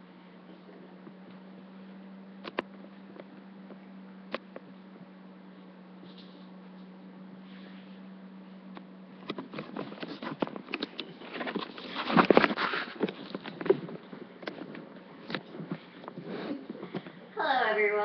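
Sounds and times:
steady low hum: 0.0s - 18.0s
device handling clicks and rustles: 9.2s - 16.2s.

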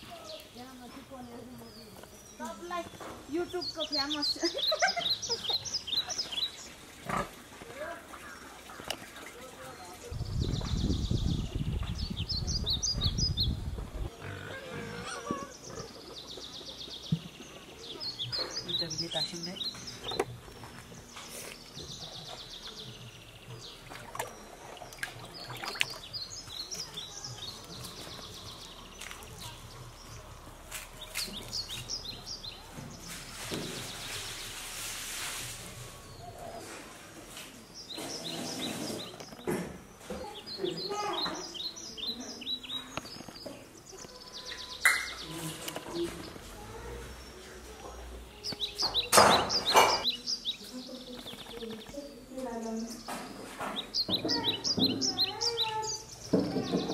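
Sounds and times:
small birds chirping: 0.0s - 56.9s
water splashing onto ground: 5.0s - 12.4s, 19.5s - 30.1s, 30.7s - 36.2s.

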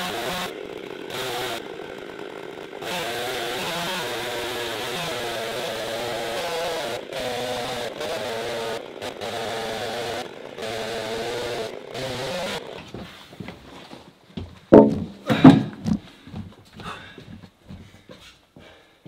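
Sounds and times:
chainsaw cutting a log: 0.0s - 13.4s.

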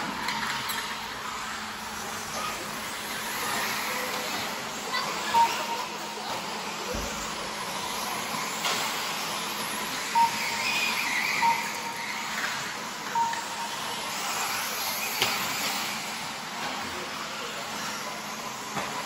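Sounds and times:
rc car motors whining: 0.0s - 19.0s
short timing beeps: 5.2s - 6.4s, 10.1s - 14.3s.

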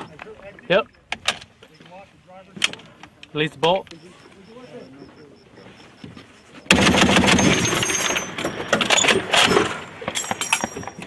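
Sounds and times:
gun bangs: 6.7s - 9.8s
heavy machine gun burst: 6.7s - 9.9s.

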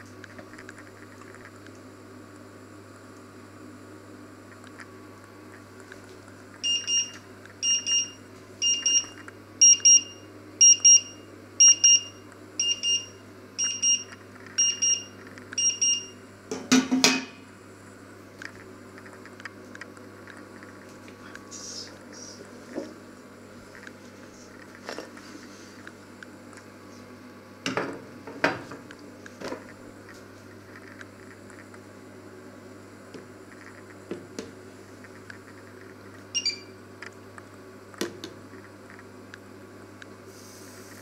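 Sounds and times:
kitchen timer double beeps: 6.6s - 16.2s, 36.3s - 36.8s.

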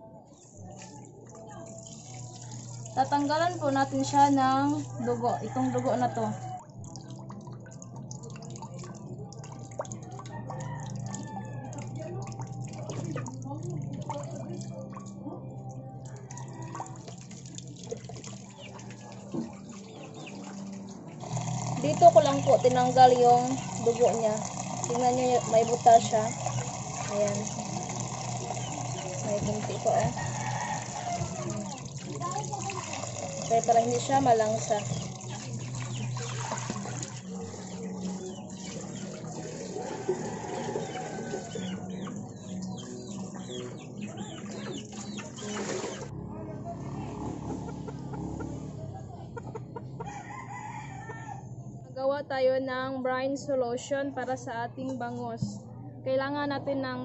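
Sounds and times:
tap water trickling into metal basin: 0.7s - 46.1s.

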